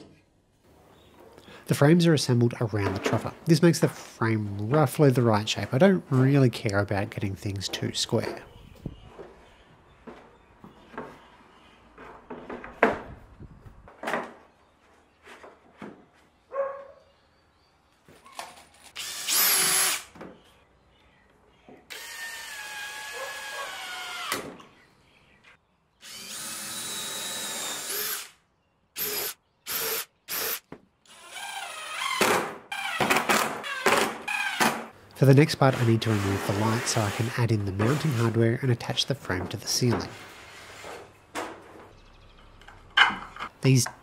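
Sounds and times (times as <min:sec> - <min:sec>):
cordless drill driving screws: 0:18.9 - 0:20.1, 0:21.9 - 0:24.4, 0:26.0 - 0:28.4, 0:29.0 - 0:33.0.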